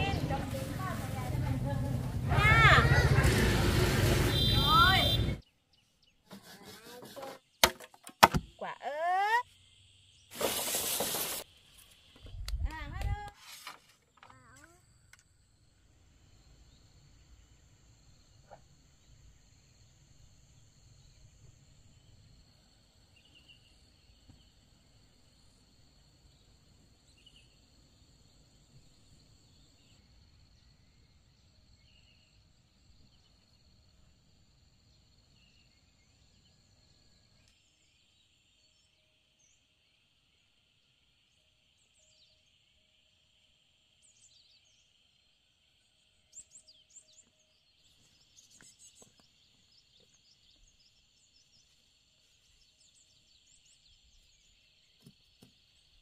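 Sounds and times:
insects buzzing: 0:14.2 - 0:56.0.

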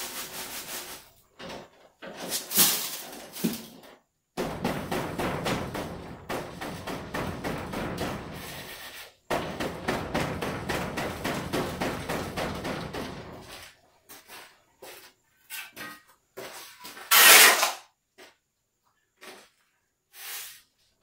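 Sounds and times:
sand rattling in a sieve: 0:00.0 - 0:01.2, 0:02.1 - 0:03.7.

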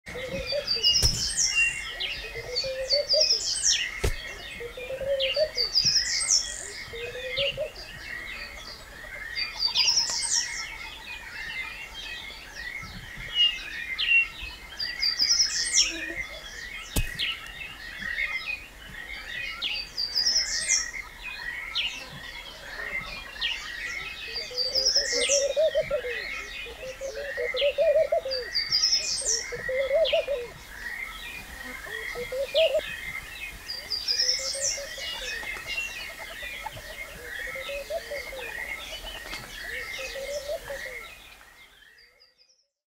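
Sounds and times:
lower bird call: 0:00.1 - 0:12.3, 0:24.3 - 0:41.5.

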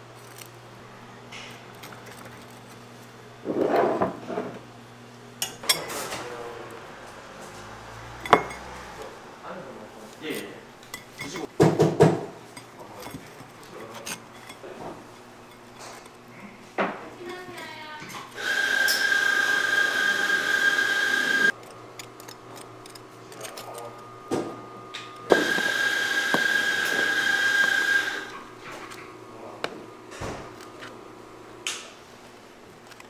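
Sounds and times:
kitchen machine whining: 0:00.0 - 0:33.0
utensils knocking: 0:21.4 - 0:29.1.

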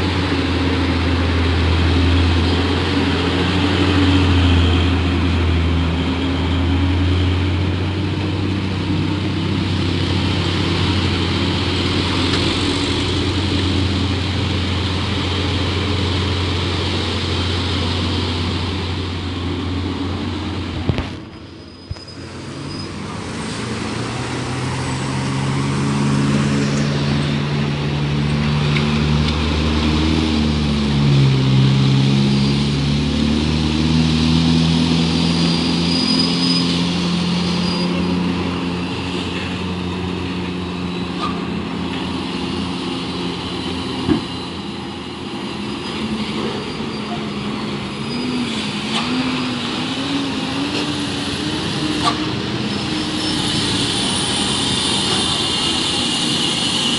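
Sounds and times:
cars passing: 0:00.0 - 0:56.9
heavy truck diesel engines: 0:00.0 - 0:56.9.

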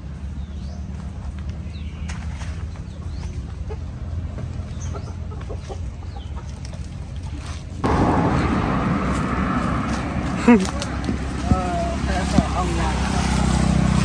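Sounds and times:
small birds chirping: 0:00.1 - 0:07.4
steady low rumble: 0:02.8 - 0:14.0
chickens clucking: 0:02.9 - 0:07.2
loud rushing noise: 0:07.8 - 0:14.0.

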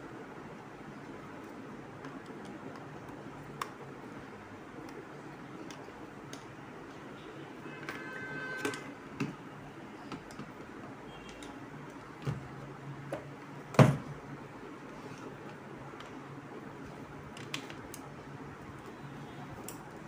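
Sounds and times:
clicks and knocks of handling: 0:10.0 - 0:12.4.

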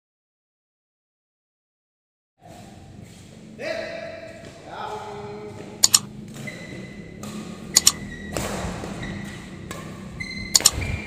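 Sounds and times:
badminton play in a hall: 0:02.4 - 0:11.0
mouse double clicks: 0:05.8 - 0:06.1, 0:07.8 - 0:08.0, 0:10.5 - 0:10.8
thud: 0:08.3 - 0:09.0.

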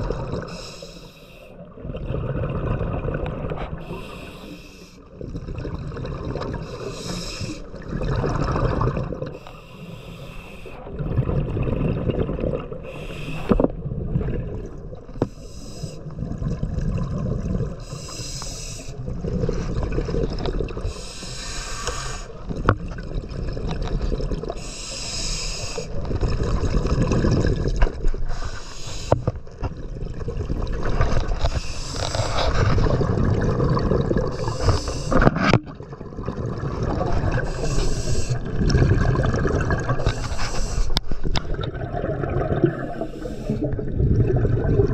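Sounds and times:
bubbling water: 0:00.0 - 0:00.6, 0:01.6 - 0:04.2, 0:05.0 - 0:18.0, 0:18.8 - 0:21.1, 0:22.3 - 0:24.8, 0:25.8 - 0:44.9
regulator breathing hiss: 0:00.5 - 0:01.5, 0:03.8 - 0:05.0, 0:06.7 - 0:07.7, 0:09.4 - 0:10.8, 0:12.9 - 0:13.7, 0:15.3 - 0:16.1, 0:17.8 - 0:19.0, 0:20.9 - 0:22.4, 0:24.6 - 0:26.0, 0:28.3 - 0:29.2, 0:31.5 - 0:32.4, 0:34.3 - 0:35.2, 0:37.4 - 0:38.4, 0:40.0 - 0:41.0, 0:43.0 - 0:43.6.

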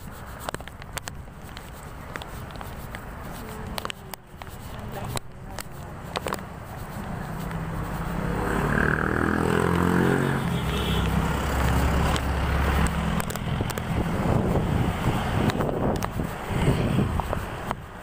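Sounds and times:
vehicle engine passing by: 0:07.0 - 0:15.8.

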